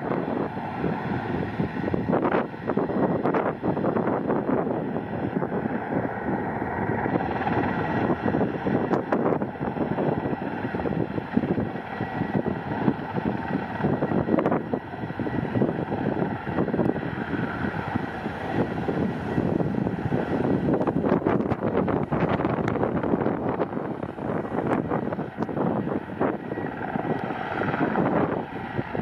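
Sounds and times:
helicopter hovering with turbine whine: 0.0 - 29.0
wind buffeting microphone: 0.0 - 29.0.

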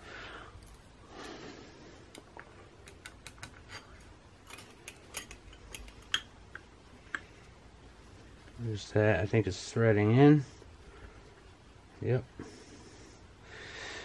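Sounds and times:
light metallic clicks and taps: 2.1 - 7.3.

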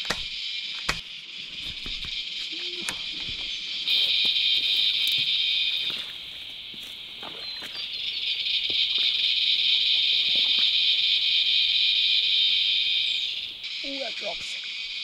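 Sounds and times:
cicadas droning: 0.0 - 15.0
rustling in undergrowth: 3.0 - 14.2.

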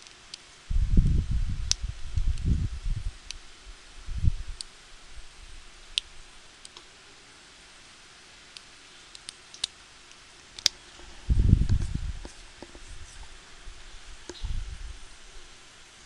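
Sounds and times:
low muffled rumble: 0.7 - 6.3, 11.0 - 15.6.

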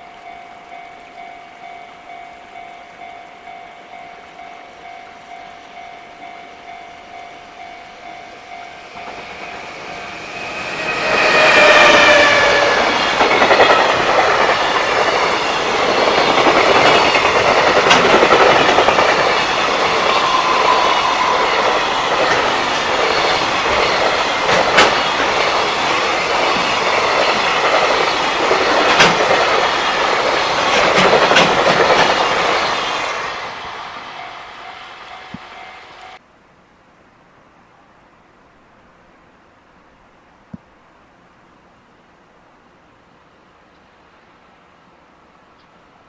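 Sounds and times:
level-crossing bell ringing: 0.0 - 12.2, 18.7 - 24.4, 34.0 - 36.2
freight train rumbling and rattling: 5.7 - 36.2
sharp clacks: 16.1 - 19.4, 24.0 - 25.1, 28.8 - 29.6, 30.7 - 32.2.

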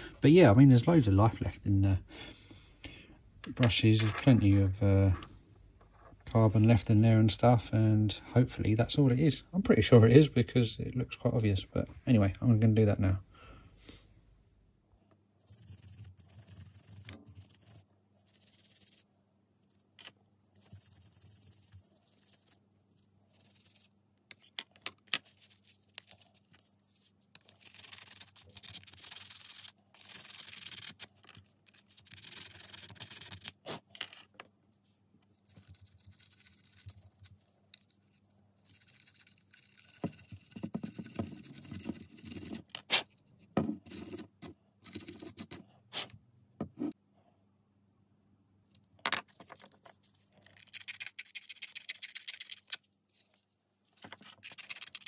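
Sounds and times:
clicks and knocks of parts handled: 24.2 - 26.6, 31.1 - 31.8, 33.9 - 34.6.

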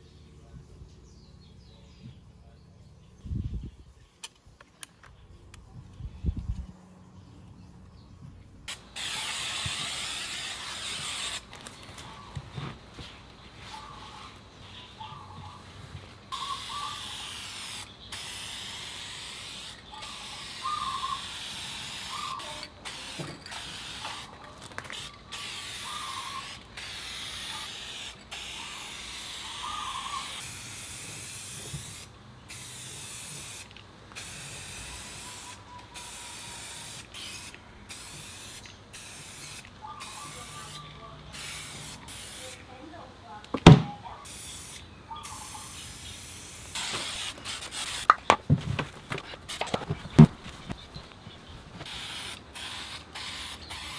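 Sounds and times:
spray paint can hissing: 8.7 - 11.6, 16.3 - 42.7, 44.2 - 48.4, 49.1 - 50.8, 51.8 - 53.9.

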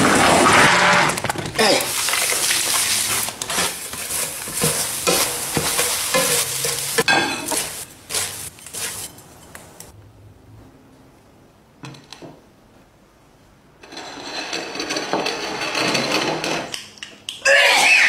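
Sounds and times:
food sizzling in a pan: 1.8 - 9.2
spatula scraping a pan: 1.8 - 9.5.

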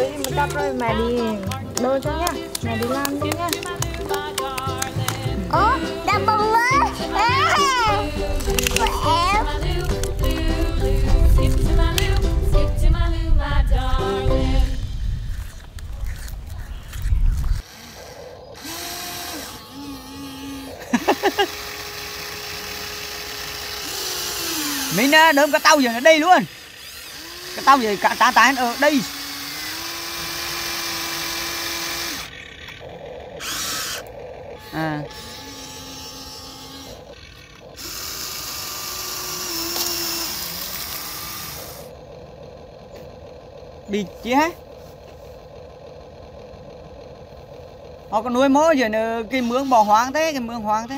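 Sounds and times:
small electric motor whining: 0.0 - 12.9, 13.5 - 50.9
loud low rumble: 7.8 - 17.6.

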